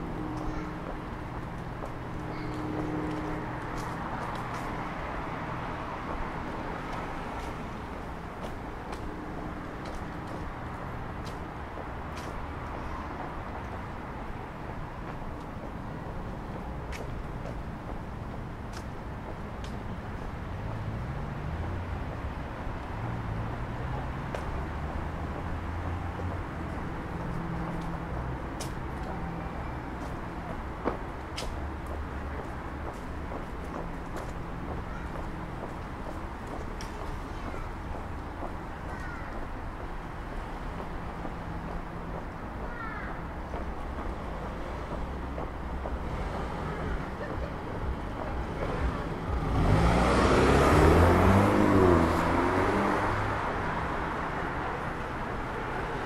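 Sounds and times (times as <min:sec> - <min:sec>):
low rumble of car engines: 0:00.0 - 0:56.0
tyres on wet road: 0:00.0 - 0:56.0
car engine passing: 0:44.5 - 0:56.0.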